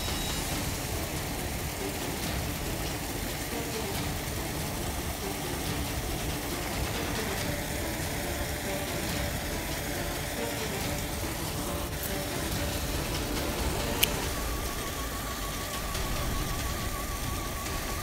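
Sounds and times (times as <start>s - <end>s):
water falling into canal: 0.0s - 18.0s.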